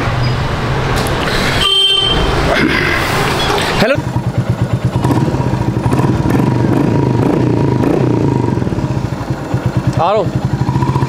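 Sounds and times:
motorcycle engine running: 3.4 - 11.0.

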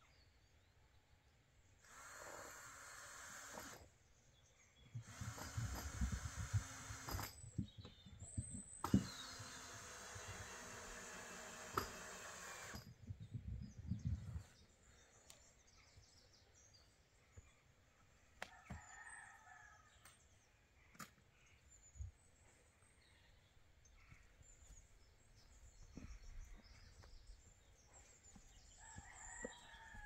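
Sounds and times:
wind buffeting microphone: 12.8 - 14.7.

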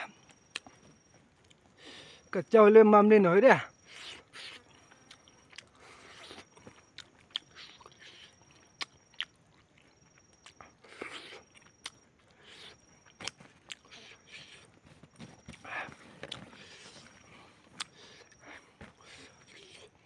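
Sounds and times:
man chewing chicken: 0.0 - 2.3, 3.8 - 20.0.

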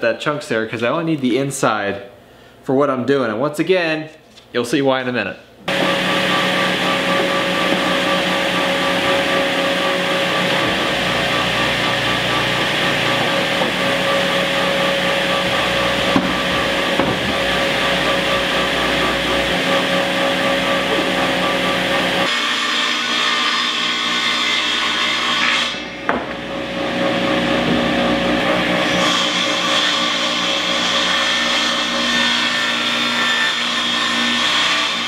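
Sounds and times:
workshop machine motor whining: 5.7 - 22.3, 26.2 - 30.5.

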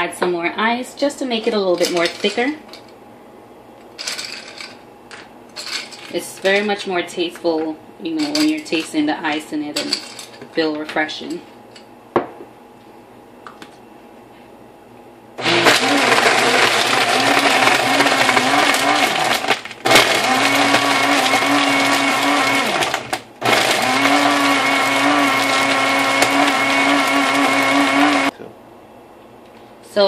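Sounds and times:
blender motor humming: 15.4 - 28.3
ice grinding in blender: 15.4 - 28.3.

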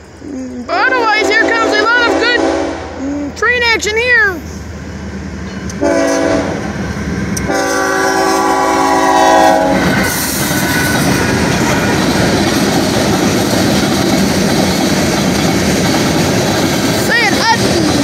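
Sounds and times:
locomotive air horn: 0.8 - 3.0, 5.8 - 6.6, 7.5 - 10.2
train wheels rumbling on rails: 3.5 - 18.0.

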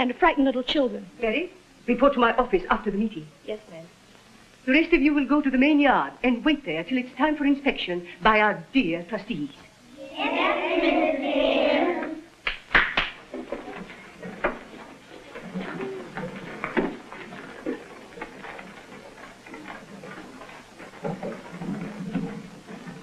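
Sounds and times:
children's footsteps shuffling: 13.1 - 23.0.

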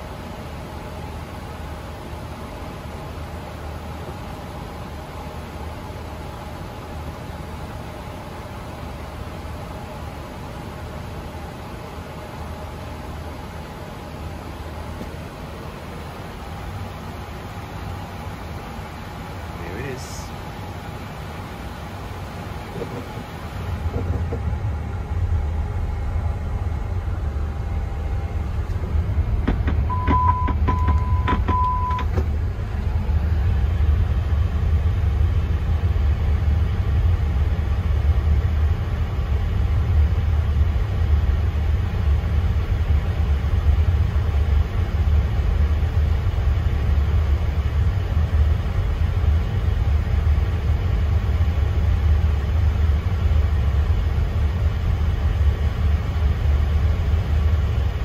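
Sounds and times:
cockpit low rumble: 22.1 - 58.0
short high beeps: 29.9 - 32.1.

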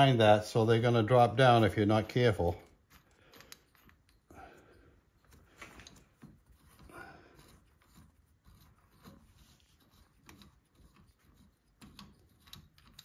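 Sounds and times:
hands clicking small steel parts: 2.6 - 4.3, 9.9 - 13.0.

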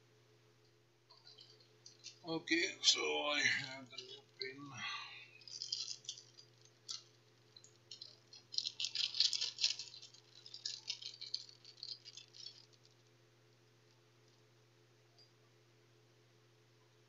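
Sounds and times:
steady low hum: 0.0 - 17.0
plastic bag crinkling: 1.1 - 13.2.

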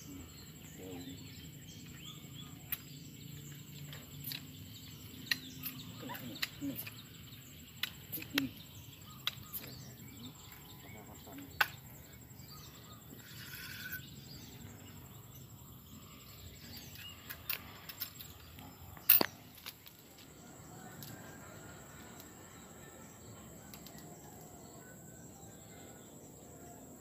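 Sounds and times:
outdoor ambience: 0.0 - 27.0
sharp clicks: 9.2 - 9.8.

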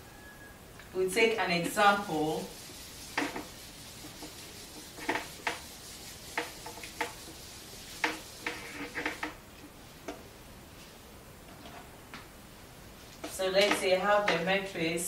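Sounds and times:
eraser wiping whiteboard: 1.6 - 9.4.

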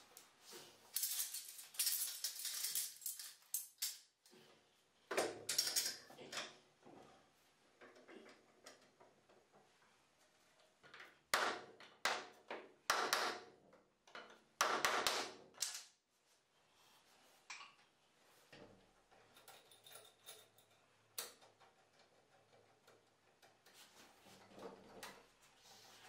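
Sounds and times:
metal clamps clattering and rattling: 19.1 - 20.9.

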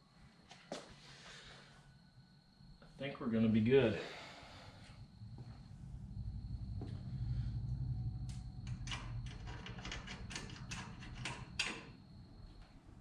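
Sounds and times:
low rumble: 4.6 - 10.1
hand tools clicking on metal: 8.7 - 11.9.

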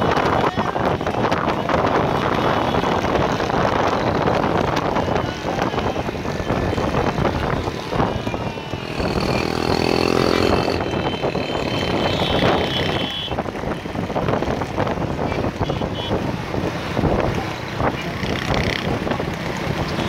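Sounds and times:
motorcycle engines running: 0.0 - 20.0
wind buffeting microphone: 0.0 - 20.0.

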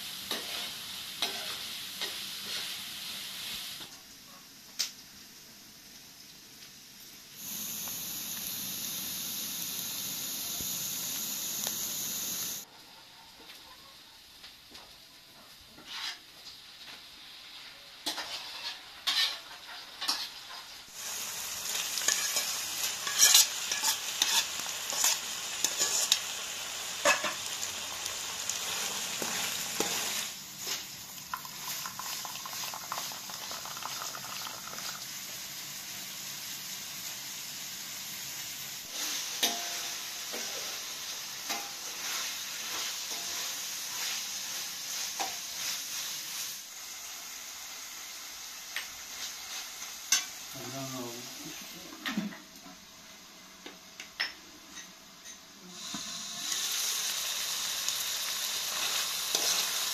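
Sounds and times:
food sizzling in frying pan: 0.0 - 12.7, 14.2 - 59.9
spatula clicking and scraping: 22.1 - 26.2.

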